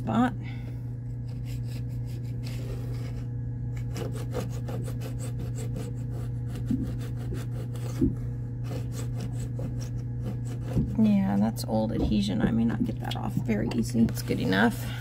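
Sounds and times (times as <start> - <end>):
razor scraper scraping wood: 3.8 - 8.0, 8.6 - 11.0.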